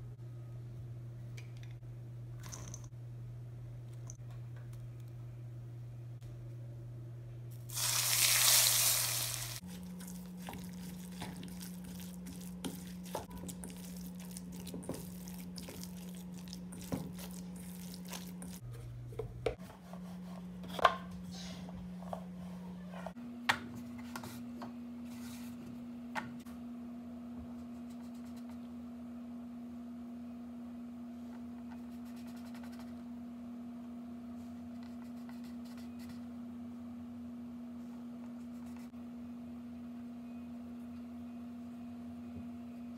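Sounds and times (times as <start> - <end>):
steady low hum: 0.0 - 7.7.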